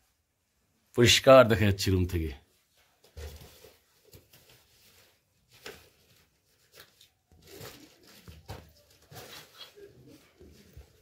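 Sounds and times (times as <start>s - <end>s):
faint clicks and rustles: 2.6s - 11.0s.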